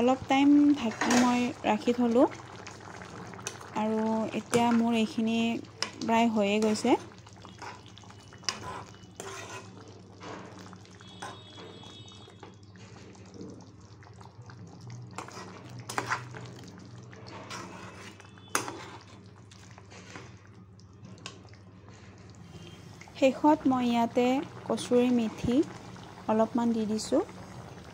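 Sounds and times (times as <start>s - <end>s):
bubbling gravy: 0.0s - 27.9s
spatula scraping pan: 5.8s - 11.8s, 15.2s - 16.4s, 17.2s - 19.2s.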